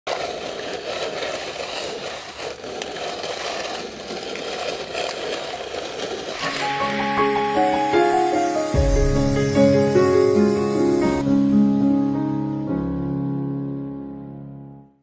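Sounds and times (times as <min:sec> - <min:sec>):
metal seeder rattling over soil: 0:00.1 - 0:06.9.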